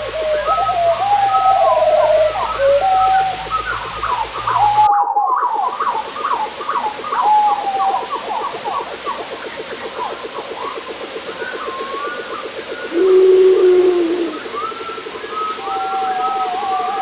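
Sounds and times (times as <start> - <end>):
fast pulsing drone: 8.1 - 17.0
low held animal call: 12.9 - 14.6.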